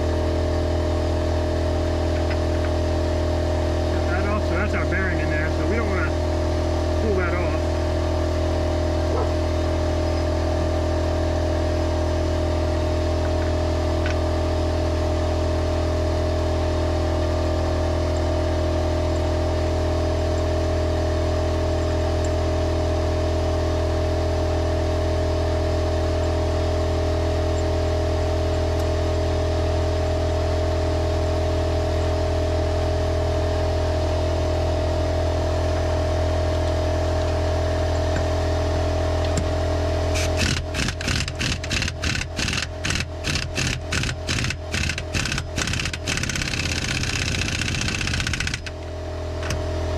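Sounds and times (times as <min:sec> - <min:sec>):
motor droning: 0:00.0 - 0:49.9.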